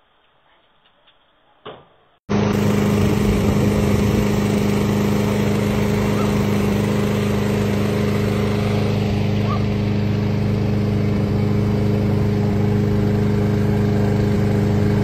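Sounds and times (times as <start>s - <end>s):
engine humming steadily: 2.3s - 15.0s.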